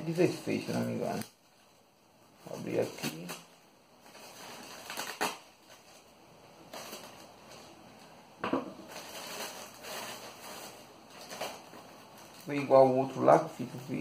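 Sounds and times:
plastic bag crinkling: 0.0s - 1.8s, 2.4s - 14.0s
knife cutting plastic: 4.1s - 5.8s.

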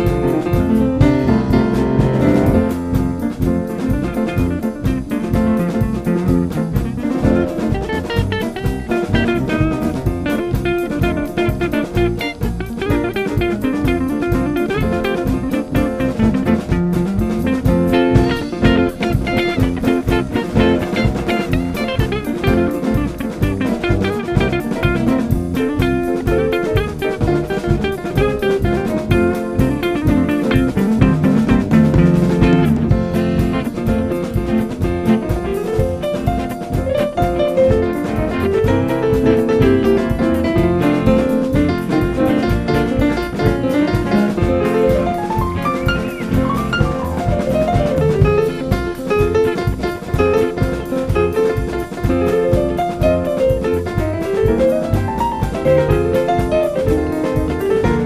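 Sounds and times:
jazzy band instrumental: 0.0s - 58.0s
quick run of notes: 0.0s - 58.0s
steady drum beat: 0.0s - 58.0s.

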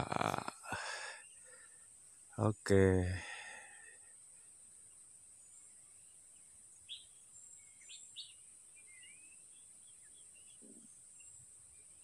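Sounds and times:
sharp bird chirps: 4.4s - 12.0s
soft bird warbling calls: 5.5s - 12.0s.

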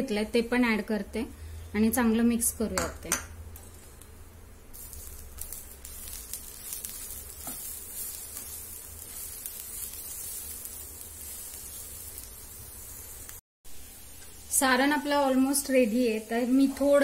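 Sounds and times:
spatula stirring in frying pan: 4.7s - 13.4s.

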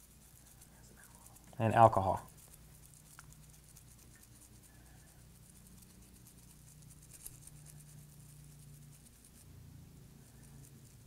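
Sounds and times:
low steady hum: 0.0s - 11.0s
toothbrush scrubbing circuit board: 0.0s - 11.0s.

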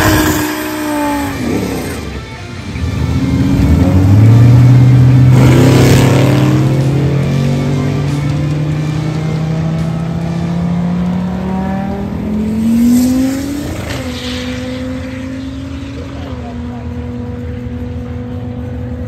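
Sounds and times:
drag car engine at full throttle: 0.0s - 19.0s.

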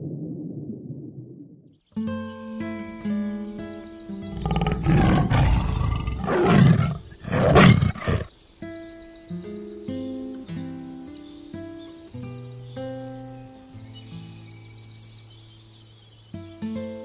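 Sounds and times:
background music of held notes: 2.0s - 4.5s
tiger roaring: 4.3s - 8.3s.

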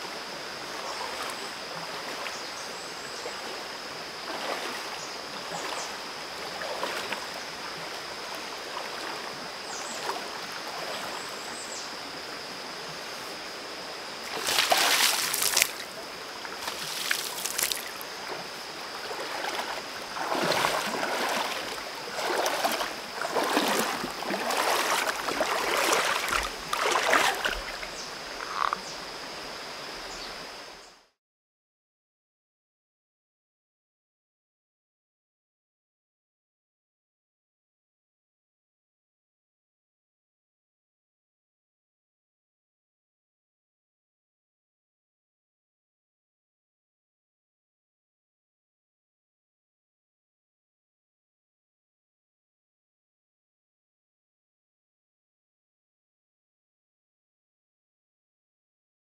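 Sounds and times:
rocky stream flowing: 0.1s - 30.7s
person wading through water: 0.6s - 11.6s, 14.2s - 28.8s
loud water splashes: 14.2s - 15.9s, 16.6s - 18.4s, 19.0s - 27.9s.

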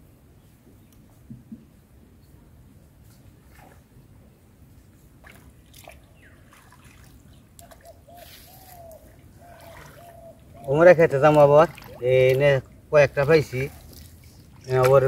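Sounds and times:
small splashes in muddy water: 5.2s - 15.0s
water trickling and dripping: 5.2s - 15.0s.

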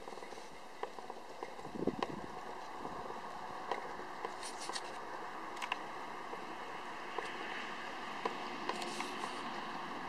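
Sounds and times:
steady outdoor hiss: 0.0s - 10.0s.

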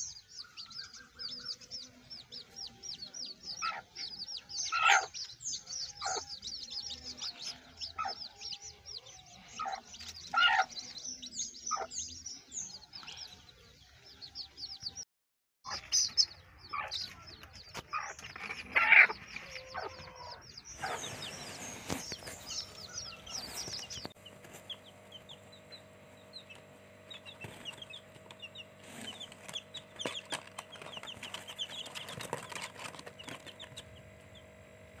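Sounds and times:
hen clucking: 0.0s - 12.3s, 15.7s - 34.4s
chicks peeping: 0.0s - 15.0s, 15.7s - 35.0s
low hum: 16.0s - 35.0s.

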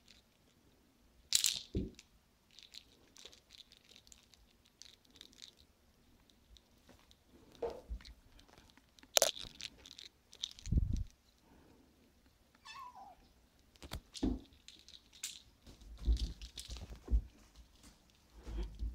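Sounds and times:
kitten meowing: 12.6s - 13.3s.

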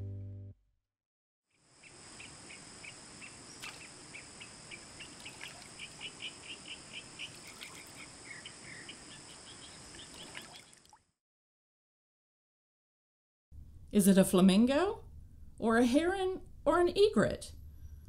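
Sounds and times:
insects droning: 1.5s - 10.9s.

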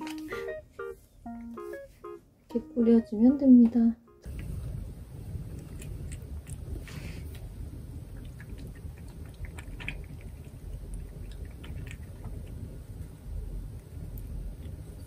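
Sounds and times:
low background rumble: 2.5s - 15.0s
cat chewing wet food: 4.3s - 15.0s.

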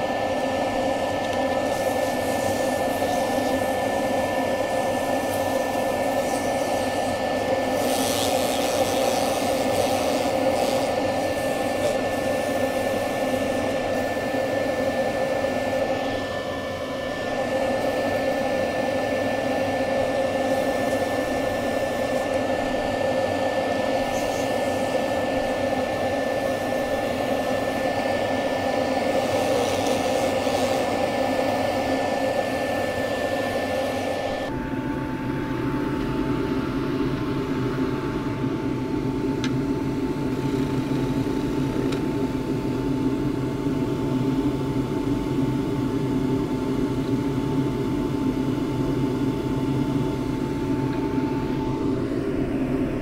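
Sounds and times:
wood lathe whine: 0.0s - 53.0s
sandpaper on spinning wood: 1.6s - 4.0s, 4.6s - 14.1s, 20.4s - 22.9s, 23.9s - 25.6s, 28.7s - 31.6s.

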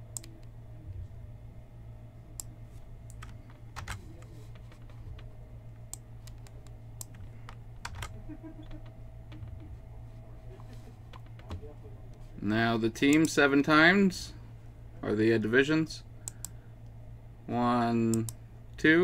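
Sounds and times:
low steady hum: 0.0s - 19.0s
keyboard and mouse clicks: 5.9s - 9.8s.

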